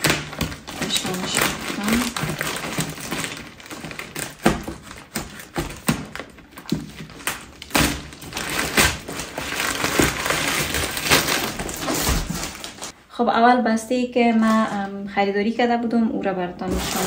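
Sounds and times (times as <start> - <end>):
plastic bag crinkling: 0.0 - 13.0, 16.6 - 17.0.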